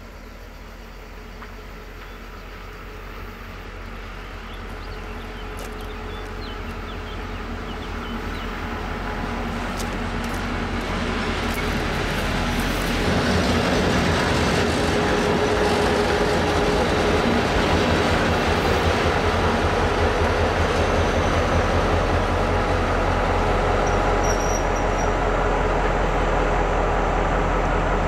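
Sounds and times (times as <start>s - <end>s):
brief high squeal: 23.9s - 25.2s.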